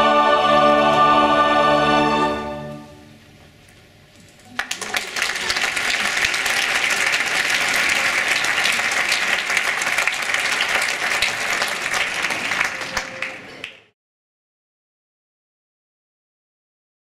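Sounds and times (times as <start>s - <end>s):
audience applauding: 4.5s - 13.9s.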